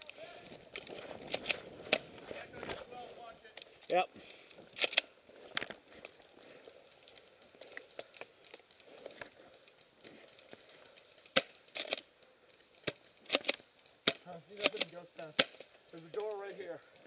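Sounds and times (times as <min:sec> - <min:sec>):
rustling of clothing and gear: 0:00.0 - 0:17.0
airsoft guns firing: 0:12.8 - 0:16.4.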